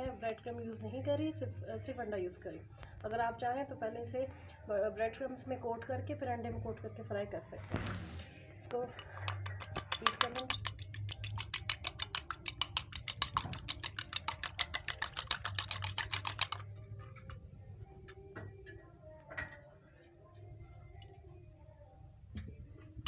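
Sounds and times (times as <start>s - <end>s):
fork clinking in glass bowl: 8.9s - 16.8s.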